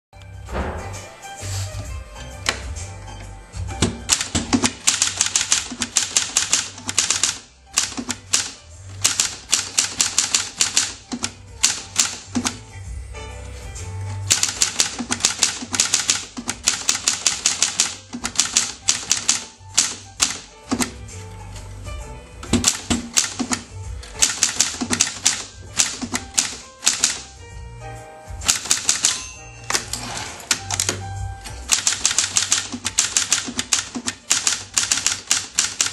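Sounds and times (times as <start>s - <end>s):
typewriter key strikes: 3.8s - 12.6s, 14.3s - 21.0s, 22.4s - 27.3s, 28.4s - 35.9s.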